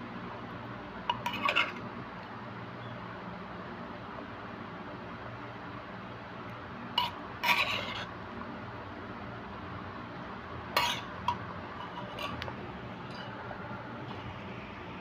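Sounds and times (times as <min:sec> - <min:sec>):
metal spoon scraping clay mortar: 0:01.1 - 0:01.8, 0:07.0 - 0:08.1, 0:10.8 - 0:11.1, 0:11.8 - 0:12.5.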